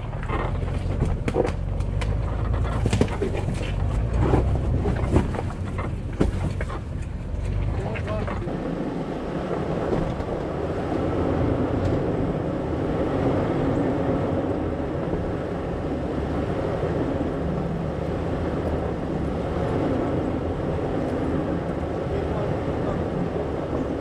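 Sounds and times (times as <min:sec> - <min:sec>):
low engine rumble: 0:00.0 - 0:24.0.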